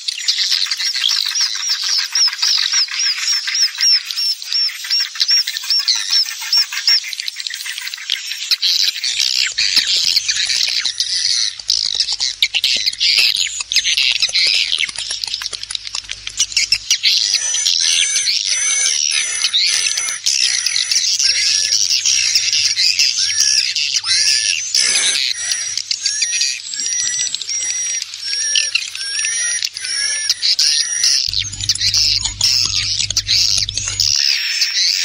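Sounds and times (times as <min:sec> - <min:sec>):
fast crackle of clicks: 0:09.1 - 0:17.3, 0:31.3 - 0:34.2
wings fluttering: 0:09.1 - 0:17.5, 0:31.3 - 0:34.2
swiftlets twittering: 0:09.1 - 0:34.2.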